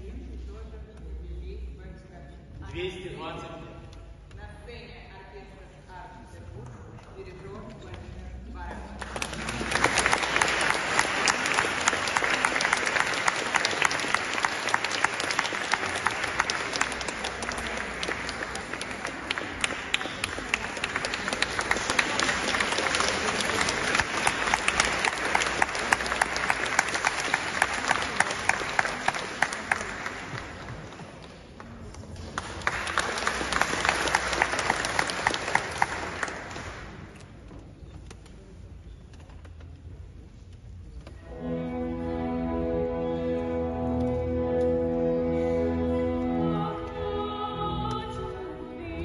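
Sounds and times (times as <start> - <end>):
audience applauding: 8.9 - 37.1.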